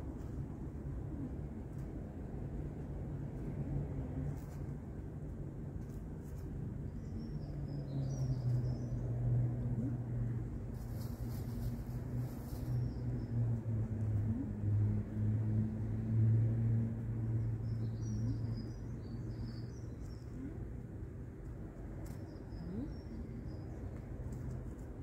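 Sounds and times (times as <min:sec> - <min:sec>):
low engine hum: 0:00.0 - 0:25.0
small birds chirping: 0:06.3 - 0:09.2, 0:17.2 - 0:25.0.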